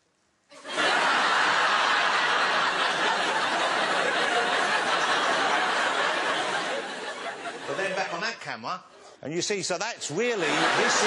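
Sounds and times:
studio audience laughing: 0.6s - 8.4s, 10.1s - 11.0s.

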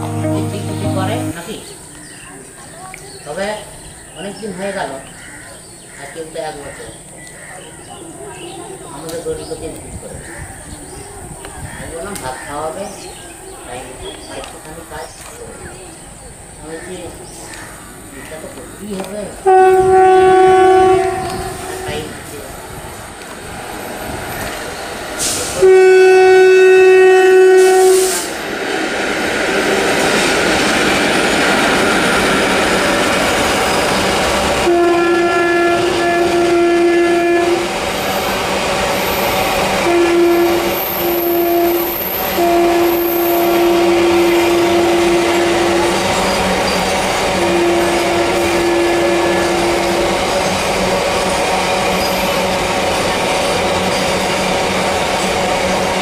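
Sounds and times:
train wagons rumbling and clattering: 6.5s - 56.0s
locomotive horn blasts: 19.4s - 22.1s, 25.6s - 28.2s, 34.6s - 37.7s, 39.8s - 46.2s, 47.3s - 50.3s.

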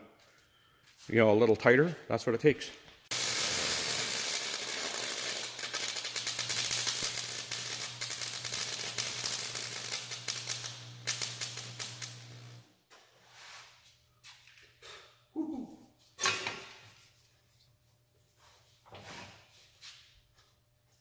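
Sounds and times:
arc welder crackling and popping: 3.1s - 12.7s.

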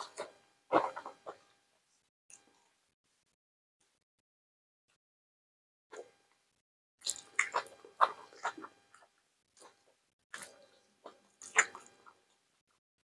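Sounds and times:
person biting and chewing: 7.0s - 12.2s.

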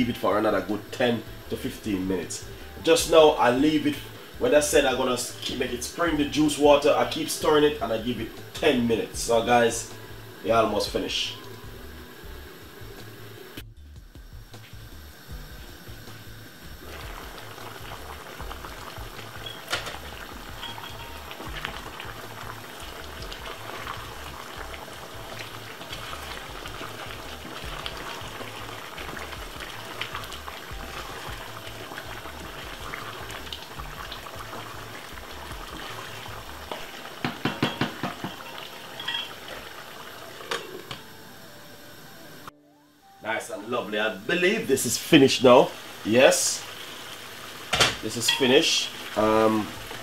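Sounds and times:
stew bubbling and sizzling: 0.0s - 43.0s, 43.6s - 50.0s
glass lid clink: 39.0s - 39.3s.

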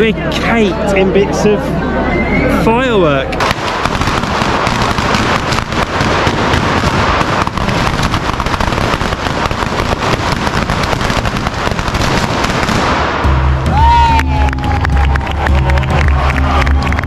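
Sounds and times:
firecrackers crackling: 3.3s - 13.8s.

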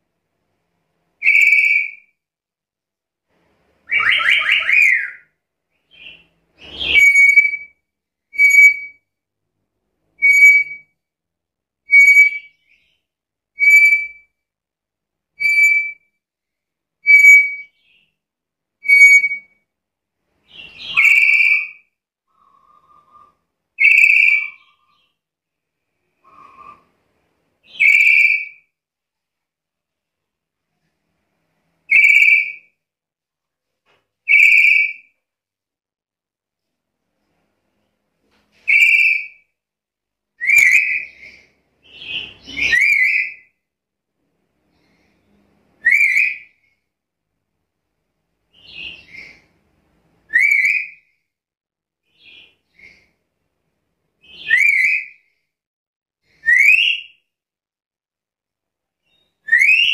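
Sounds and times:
parrot shrill whistling calls: 1.2s - 2.1s, 3.9s - 5.3s, 6.0s - 7.7s, 8.3s - 9.0s, 10.2s - 10.9s, 11.9s - 12.6s, 13.6s - 14.2s, 15.4s - 16.0s, 17.0s - 17.8s, 18.8s - 19.6s, 20.6s - 21.8s, 22.4s - 25.0s, 27.7s - 28.6s, 31.9s - 32.6s, 34.3s - 35.1s, 38.7s - 39.4s, 40.4s - 43.5s, 45.8s - 46.5s, 50.3s - 51.0s, 54.2s - 55.2s, 56.4s - 57.2s, 59.1s - 59.9s.

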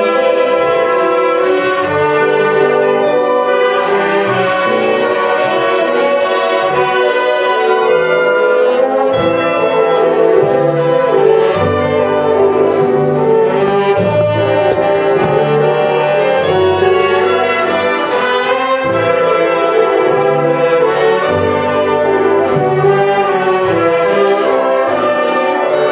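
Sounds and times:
percussion strikes: 0.0s - 25.9s
wind band playing chords: 0.0s - 25.9s.

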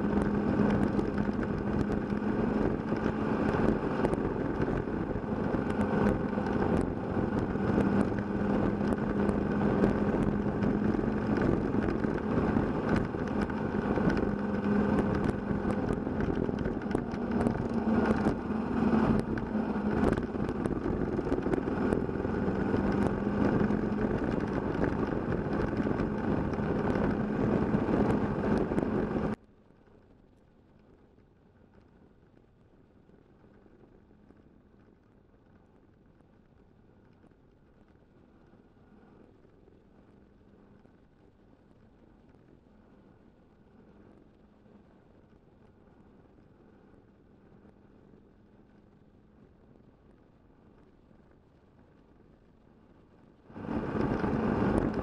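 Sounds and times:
motorcycle engine cruising: 0.0s - 29.4s, 53.5s - 55.0s
wind noise: 0.0s - 29.4s, 53.4s - 55.0s.

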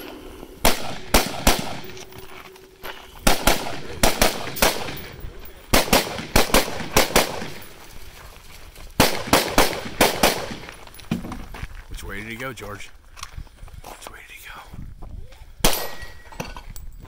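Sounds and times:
gunshots: 0.6s - 2.2s, 3.2s - 7.8s, 9.0s - 10.8s.

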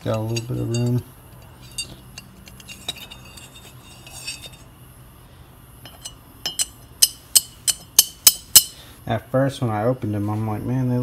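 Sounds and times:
steel tool clinking on metal: 0.0s - 4.6s, 5.8s - 8.8s.

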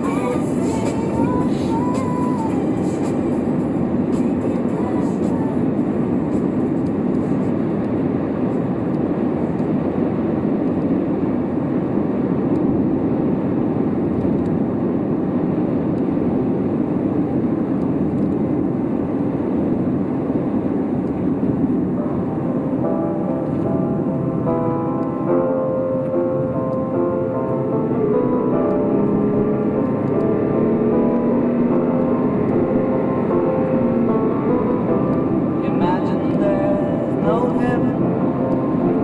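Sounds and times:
car engine cruising: 0.0s - 39.0s
tyres on road: 21.1s - 39.0s.

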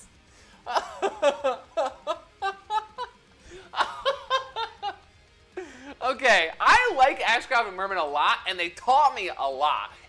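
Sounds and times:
man laughing heartily: 0.5s - 6.0s.

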